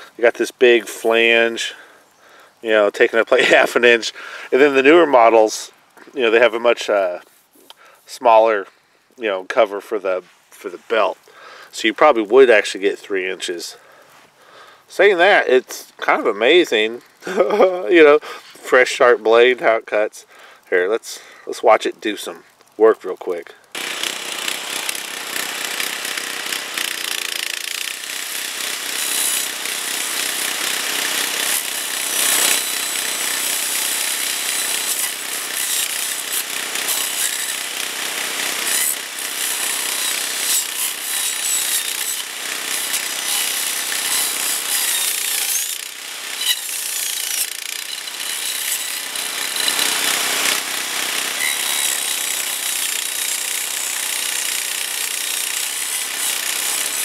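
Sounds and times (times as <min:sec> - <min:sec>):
blade grinding into stems: 0:23.7 - 0:57.0
trimmer engine running hard: 0:23.8 - 0:57.0.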